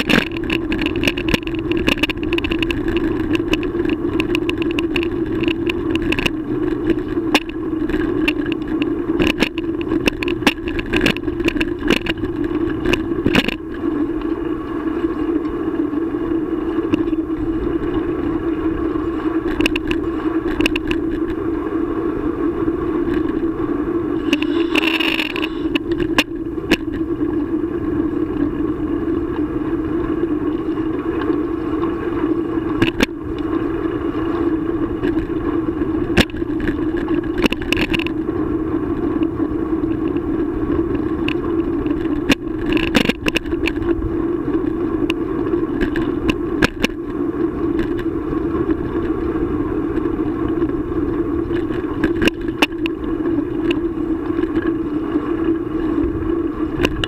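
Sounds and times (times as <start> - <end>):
bicycle riding hum and rumble: 0.0 - 57.0.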